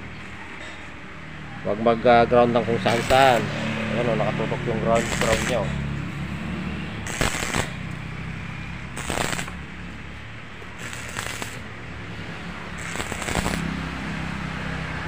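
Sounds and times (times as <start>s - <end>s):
arc welding bursts: 2.8s - 5.9s, 7.0s - 9.8s, 10.8s - 14.0s.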